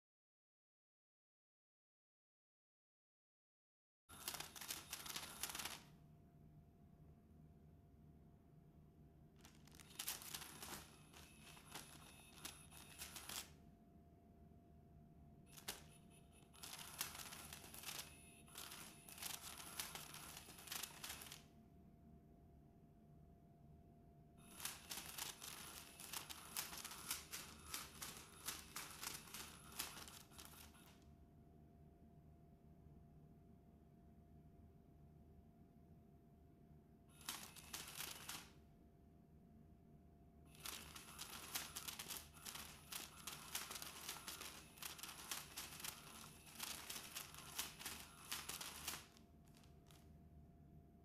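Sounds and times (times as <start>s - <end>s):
cat toy fabric crinkling: 4.1s - 5.8s, 9.4s - 13.4s, 16.6s - 21.4s, 24.4s - 30.8s, 37.2s - 38.4s, 40.5s - 50.0s
faint steady hum: 4.1s - 51.0s.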